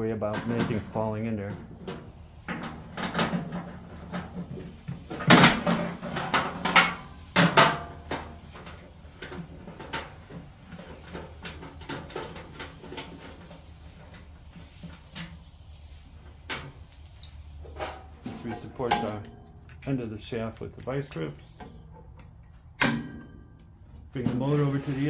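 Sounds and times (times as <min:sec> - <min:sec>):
metal clanks: 0:17.7 - 0:24.6.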